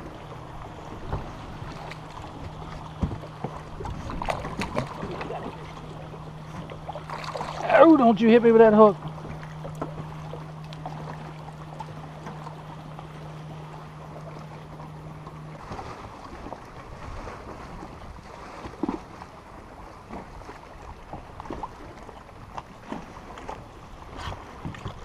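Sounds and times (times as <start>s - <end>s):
low steady hum: 0.0s - 25.0s
water lapping against boat hull: 0.0s - 25.0s
small knocks and splashes: 1.1s - 5.9s.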